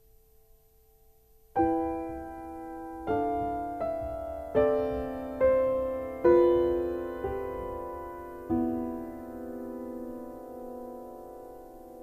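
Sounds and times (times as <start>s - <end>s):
slow piano chords: 0.0s - 12.0s.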